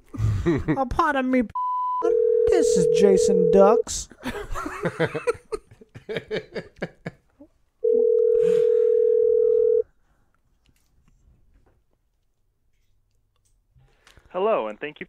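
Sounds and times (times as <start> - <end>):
telephone ringback tone: 1.6 - 3.8, 7.8 - 9.8.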